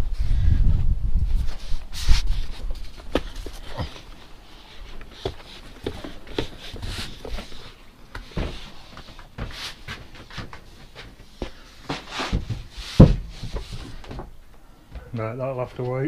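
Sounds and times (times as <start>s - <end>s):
footsteps: 1.3s - 16.0s
board knocking and scraping: 5.0s - 14.3s.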